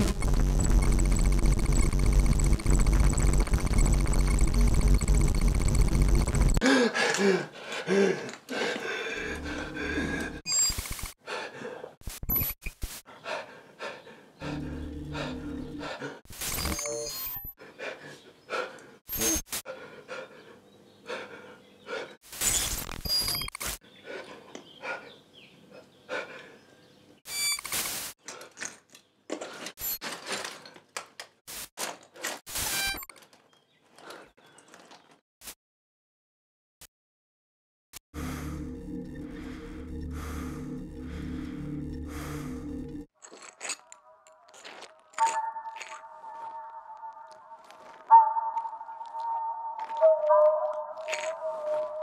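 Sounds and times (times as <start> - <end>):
bursts of static noise: 0.0 - 6.6
stuttering digital clicks: 0.0 - 6.6, 10.5 - 11.2
steady low hum: 14.4 - 15.9, 38.2 - 43.1.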